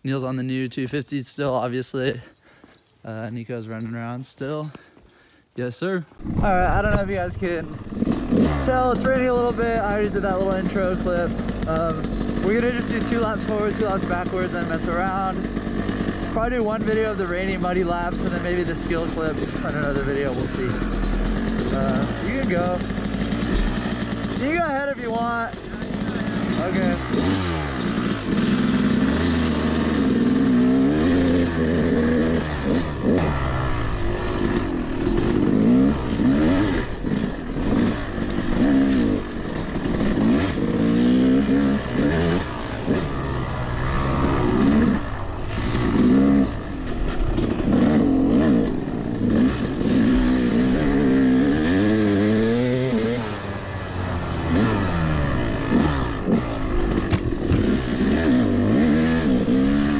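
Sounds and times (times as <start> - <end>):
person talking: 0.0 - 2.3, 3.0 - 4.9, 5.6 - 7.8, 8.6 - 15.5, 16.3 - 20.9, 21.5 - 23.0, 24.3 - 25.8, 26.5 - 27.2
two-stroke motorcycle engine revving: 6.4 - 59.9.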